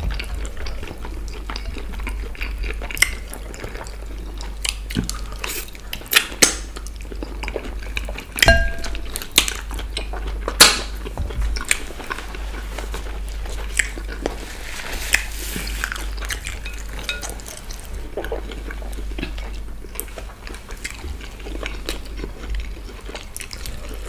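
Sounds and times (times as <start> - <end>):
fingers tapping ceramic plates: 8.4 - 9.4.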